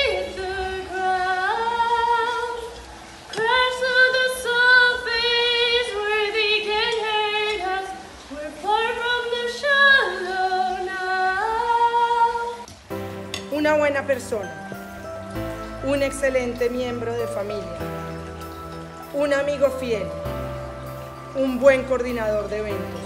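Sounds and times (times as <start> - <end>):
woman singing with vibrato: 0.0 - 2.8, 3.4 - 12.7.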